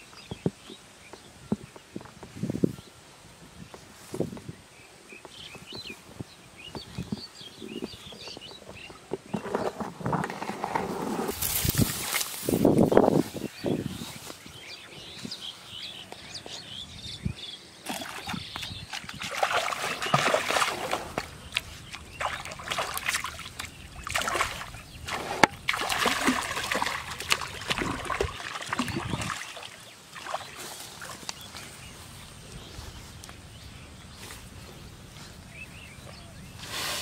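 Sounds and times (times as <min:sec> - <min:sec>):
fish splashing in water: 0:17.9 - 0:31.2.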